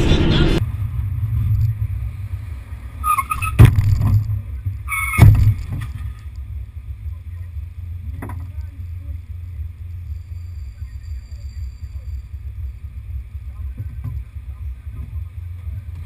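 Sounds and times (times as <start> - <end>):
vehicle low rumble: 0.0 - 16.0.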